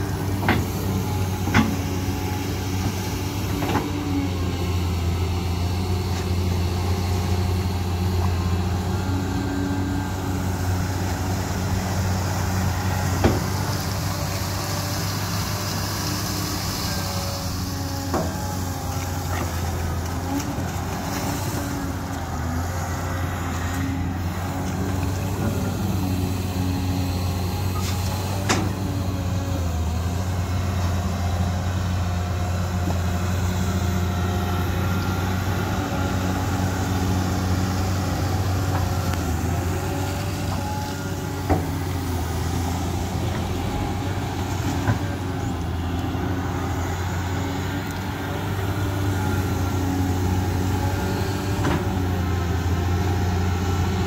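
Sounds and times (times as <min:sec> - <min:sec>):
excavator diesel engine running: 0:00.0 - 0:54.0.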